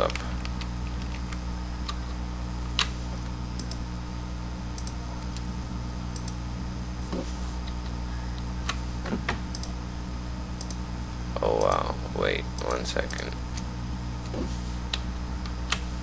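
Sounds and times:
low electrical hum: 0.0s - 16.0s
keyboard and mouse clicks: 3.6s - 3.8s, 4.8s - 5.5s, 6.1s - 6.4s, 9.5s - 9.8s, 10.6s - 10.8s.

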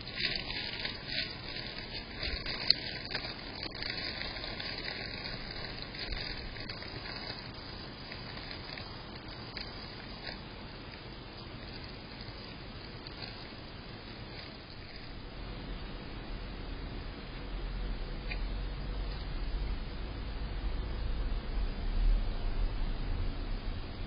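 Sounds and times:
hedgehog rustling dry leaves: 0.0s - 15.3s
steady hiss: 0.0s - 24.0s.

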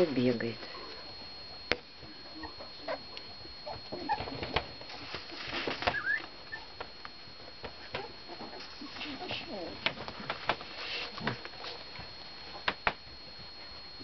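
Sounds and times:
puppies squeaking and whimpering: 2.3s - 6.8s.

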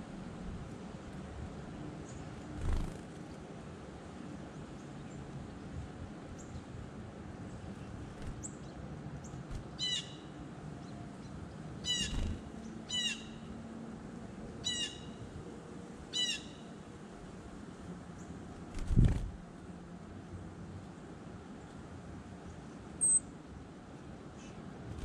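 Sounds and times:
bird wings fluttering: 2.5s - 3.2s, 8.1s - 8.5s, 9.4s - 9.8s, 11.9s - 12.6s, 18.6s - 19.4s.

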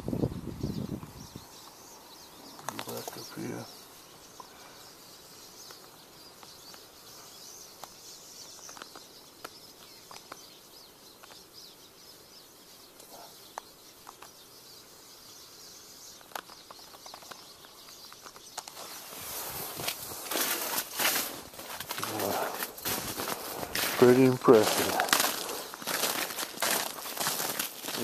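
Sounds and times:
low even hiss: 0.0s - 25.8s.

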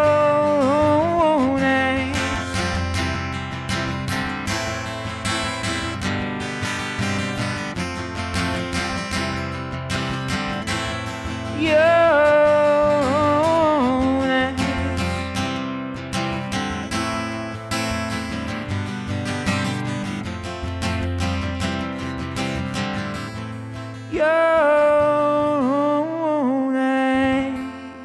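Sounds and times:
wordless singing: 0.0s - 2.9s, 11.5s - 15.2s, 24.1s - 28.0s
acoustic guitar strumming: 0.0s - 28.0s.

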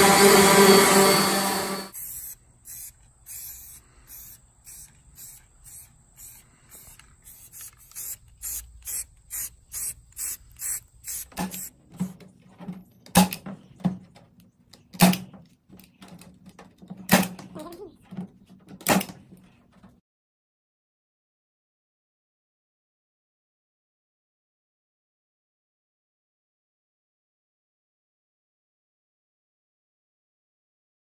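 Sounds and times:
spray-paint can hissing: 1.9s - 11.7s.

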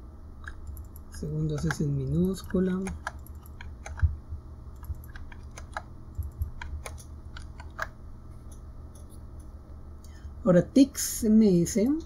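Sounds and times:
low steady hum: 0.0s - 12.0s
keyboard key clicks: 0.4s - 4.1s, 4.8s - 9.1s.

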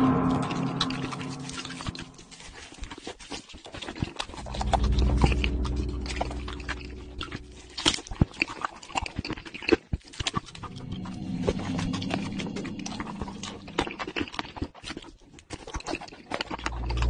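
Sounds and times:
low drawn-out hum: 0.0s - 2.6s, 4.3s - 8.2s, 10.4s - 14.4s
chewing and smacking: 2.6s - 4.4s, 7.8s - 10.7s, 12.3s - 17.0s.

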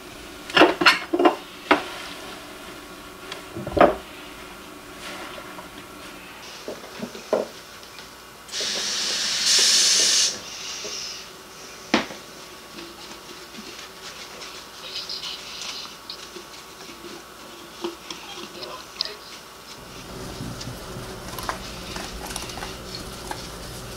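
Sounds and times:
kitchen faucet running: 19.8s - 23.9s.

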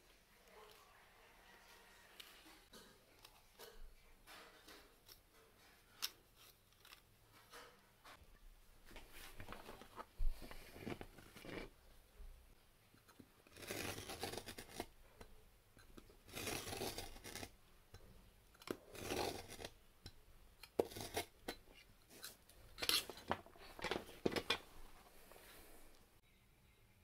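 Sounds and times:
knife scoring cardboard: 13.5s - 14.9s, 16.2s - 17.5s, 18.6s - 19.8s, 20.6s - 23.2s.

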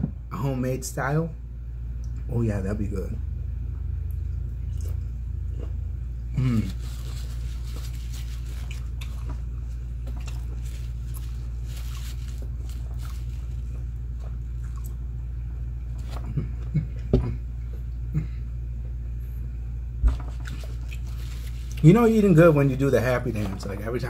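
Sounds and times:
low room hum: 0.0s - 24.0s
mouth sounds of eating: 4.6s - 9.4s.

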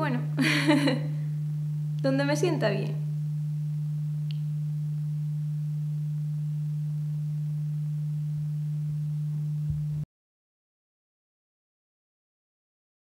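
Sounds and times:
low pure-tone hum: 0.0s - 10.1s.

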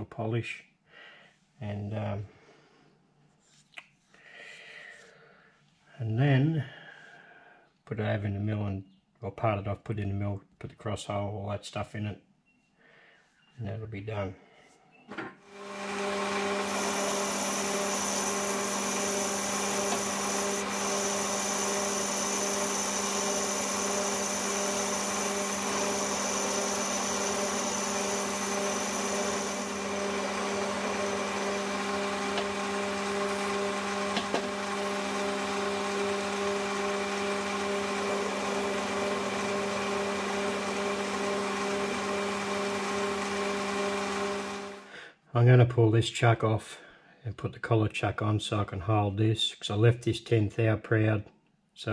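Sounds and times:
metal lathe humming: 15.5s - 44.9s.

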